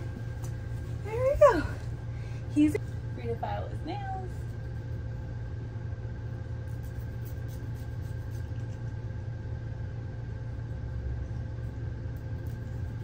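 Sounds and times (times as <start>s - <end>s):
low mechanical hum: 0.0s - 13.0s
nail file scratching claws: 6.6s - 9.0s.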